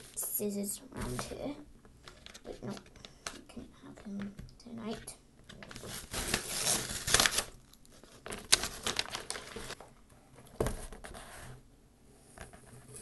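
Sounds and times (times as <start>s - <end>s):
paper tearing and crinkling: 5.6s - 9.8s.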